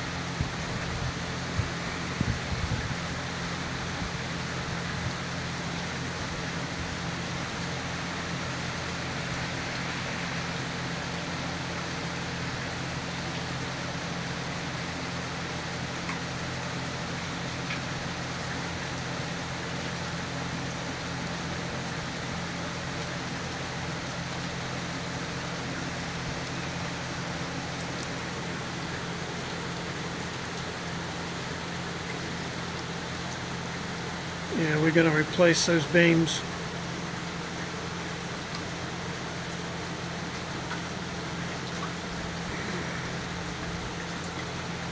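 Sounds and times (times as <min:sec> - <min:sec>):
heavy rain: 0:00.0 - 0:44.9
low steady hum: 0:00.0 - 0:44.9
raindrop ticks: 0:16.0 - 0:16.5, 0:36.4 - 0:44.9.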